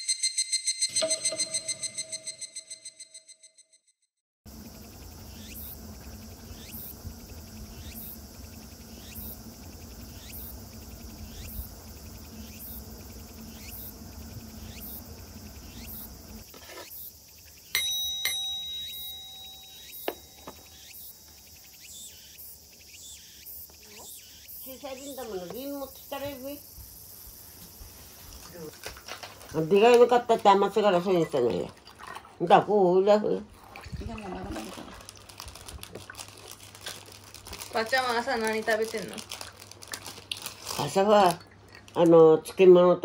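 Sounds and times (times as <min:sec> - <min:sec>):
bowl bell ringing: 0:00.0 - 0:03.5, 0:17.7 - 0:20.6
low hum: 0:04.5 - 0:16.4
insects chirping: 0:04.5 - 0:31.8, 0:32.4 - 0:42.0.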